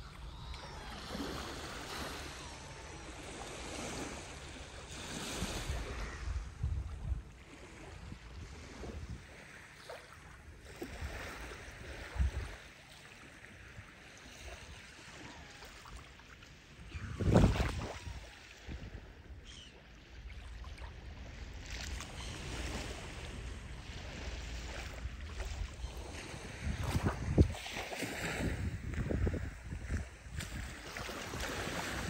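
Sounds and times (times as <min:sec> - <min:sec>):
wind rumbling on microphone: 0:00.0 - 0:09.6, 0:10.8 - 0:12.7, 0:16.7 - 0:19.6, 0:20.8 - 0:32.0
small waves lapping on shore: 0:00.0 - 0:32.0.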